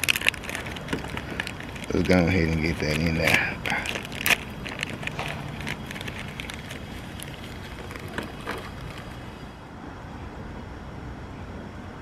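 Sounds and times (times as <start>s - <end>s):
plastic bag crinkling: 0.0s - 9.5s
steady low rumble: 0.0s - 10.9s.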